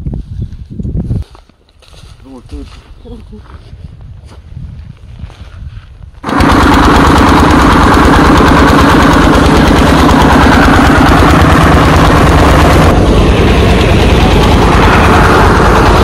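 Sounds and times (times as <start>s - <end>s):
diesel engine chugging: 6.2s - 16.0s
threshing machine clatter: 6.2s - 16.0s.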